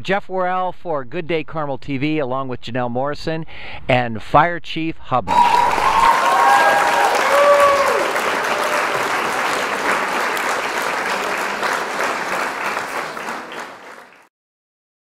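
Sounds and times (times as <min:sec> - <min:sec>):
crowd applauding: 0:05.3 - 0:14.3.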